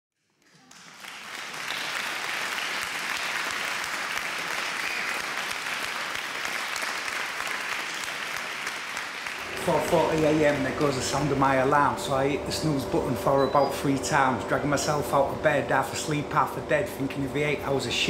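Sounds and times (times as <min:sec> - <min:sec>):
audience applauding: 0:00.3 - 0:11.8.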